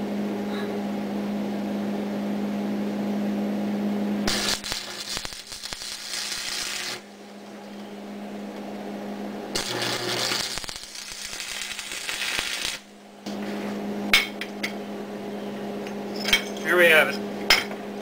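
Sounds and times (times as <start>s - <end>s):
steady low hum: 0.0s - 18.0s
arc welder crackling: 4.2s - 7.9s, 9.4s - 13.6s.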